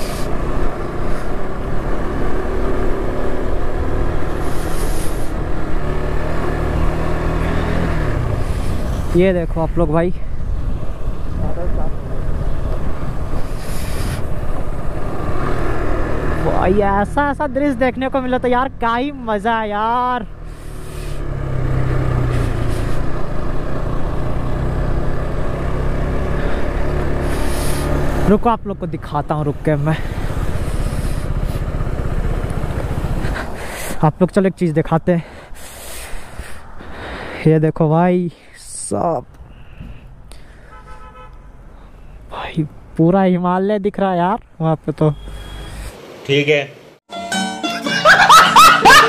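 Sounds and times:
motorcycle engine running: 0:29.6 - 0:33.5.

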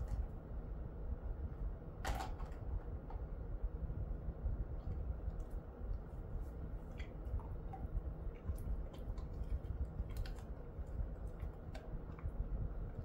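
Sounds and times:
low rumble: 0:00.0 - 0:13.0
dog chewing treat crunching: 0:06.9 - 0:13.0.

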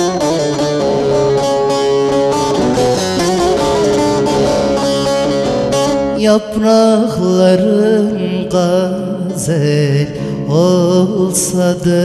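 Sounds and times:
folk band accompaniment: 0:00.0 - 0:06.5
long-necked lute melody: 0:00.0 - 0:11.7.

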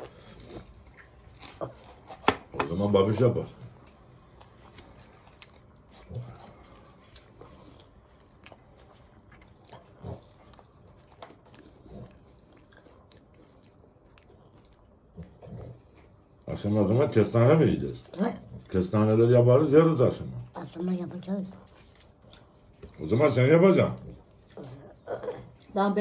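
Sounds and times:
person chewing food: 0:00.0 - 0:02.7, 0:03.6 - 0:16.4, 0:21.6 - 0:23.2, 0:23.8 - 0:25.8.

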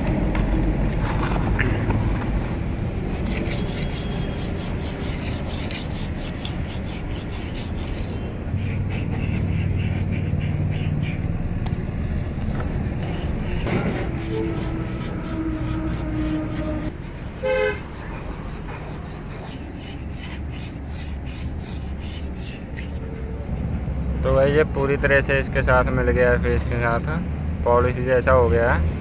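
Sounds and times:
steady low hum: 0:00.0 - 0:24.1
sandpaper scraping on metal rod: 0:03.1 - 0:11.3, 0:12.2 - 0:23.0.

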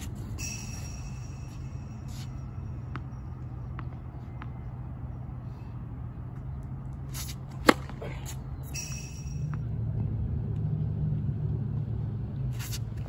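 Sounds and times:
racket striking tennis ball: 0:07.1 - 0:09.6.

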